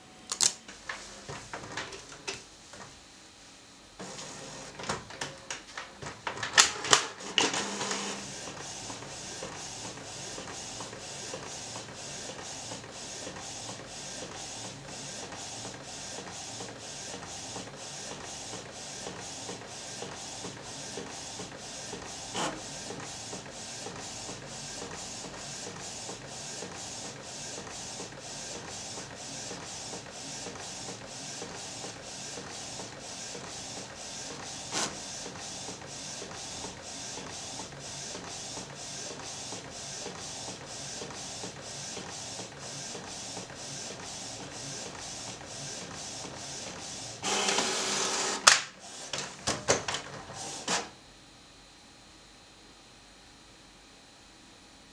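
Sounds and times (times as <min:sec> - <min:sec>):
printer carriage sweeping: 0:04.0 - 0:24.2, 0:31.5 - 0:42.3, 0:43.0 - 0:50.9
sharp printer clicks: 0:04.0 - 0:31.0, 0:31.7 - 0:50.9.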